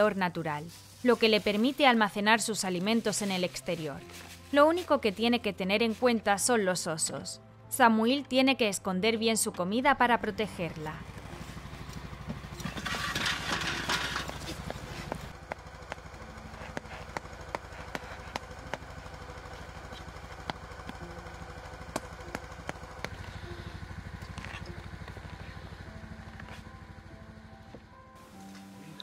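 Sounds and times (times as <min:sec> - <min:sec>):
rustling crunch: 0:00.6 - 0:06.0
small motor humming: 0:10.6 - 0:28.7.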